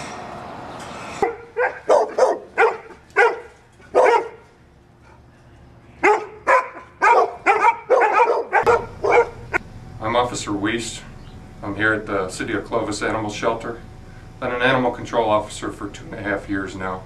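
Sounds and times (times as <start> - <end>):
dog barking: 1.2 - 4.4, 6.0 - 9.5.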